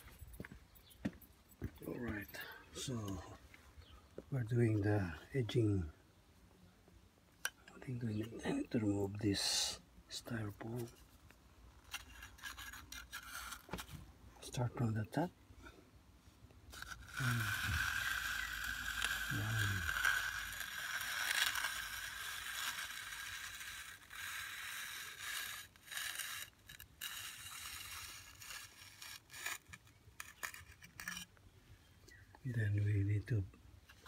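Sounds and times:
metal edger scraping wet concrete: 11.9 - 13.8, 16.7 - 31.4.

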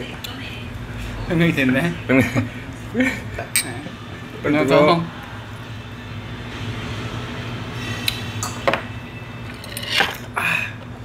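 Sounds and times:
low room hum: 0.0 - 11.0
tableware clinking: 3.5 - 3.8, 8.4 - 10.3.

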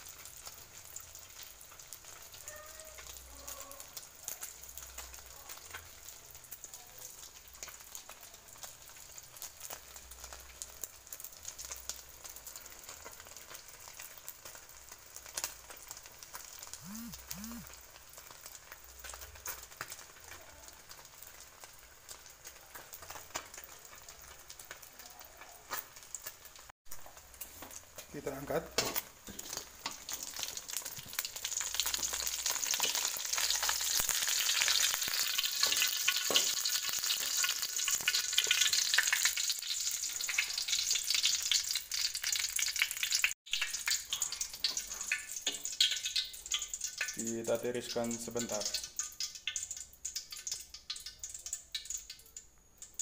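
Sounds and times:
egg sizzling in hot oil: 0.0 - 53.0.

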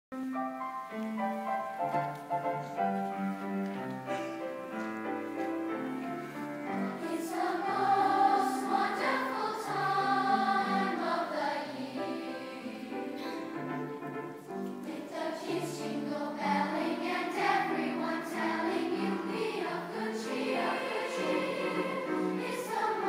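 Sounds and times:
piano accompaniment: 0.1 - 23.0
choir singing: 5.7 - 23.0.

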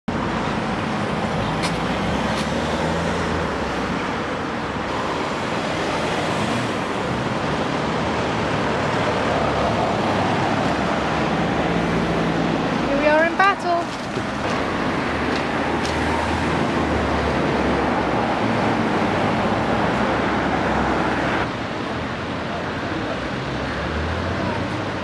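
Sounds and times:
cars passing: 0.1 - 25.0
tyre noise: 13.7 - 16.2.

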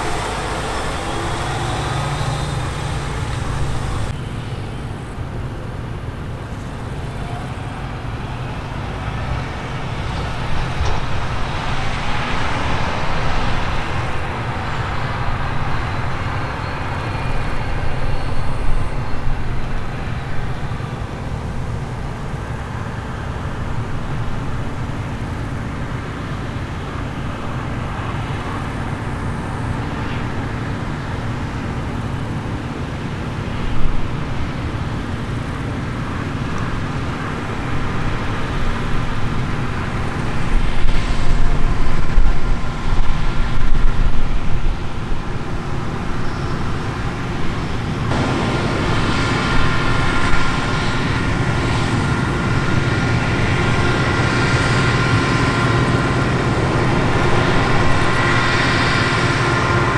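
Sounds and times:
diesel engines droning under load: 0.0 - 59.9.

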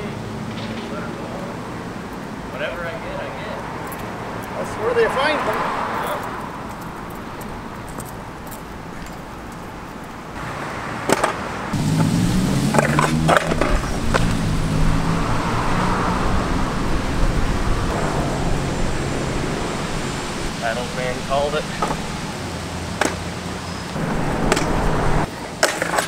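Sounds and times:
scooter hitting concrete: 11.1 - 11.4, 12.7 - 14.4, 23.0 - 23.2, 24.4 - 24.8, 25.6 - 26.0
loud steady low hum: 16.4 - 22.3, 24.0 - 25.3.

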